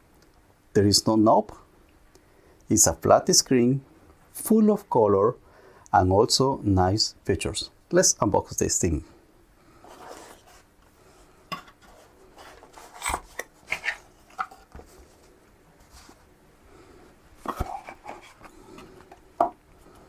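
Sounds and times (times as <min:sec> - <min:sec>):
cardboard box rustling and scraping: 0:09.8 - 0:10.7, 0:11.8 - 0:16.3, 0:17.4 - 0:18.9.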